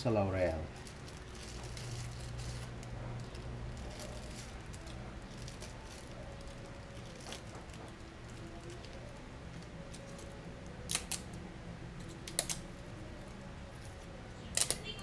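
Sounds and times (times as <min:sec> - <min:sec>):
low steady hum: 0:00.0 - 0:15.0
plastic packet crinkling: 0:00.5 - 0:11.2.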